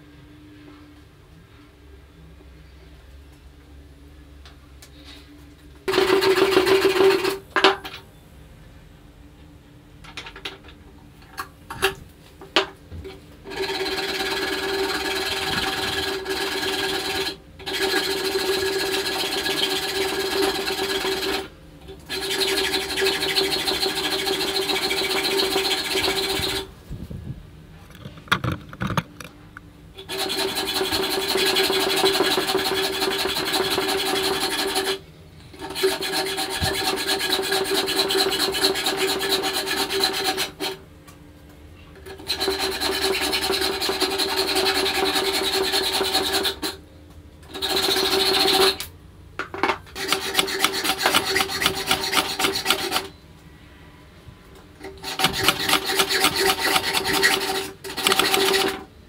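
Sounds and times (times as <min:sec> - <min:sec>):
hacksaw cutting steel pipe: 0:05.9 - 0:07.7, 0:13.5 - 0:21.5, 0:22.1 - 0:26.7, 0:30.0 - 0:35.0, 0:35.6 - 0:40.8, 0:42.0 - 0:46.8, 0:47.5 - 0:48.9, 0:49.9 - 0:53.1, 0:54.8 - 0:58.9.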